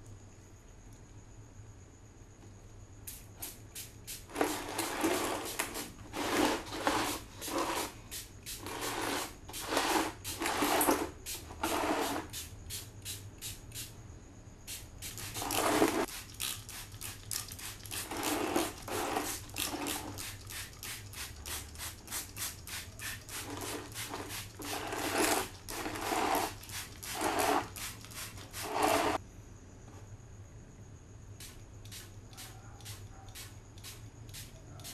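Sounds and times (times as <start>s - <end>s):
spray bottle squirts: 14.7s - 29.2s.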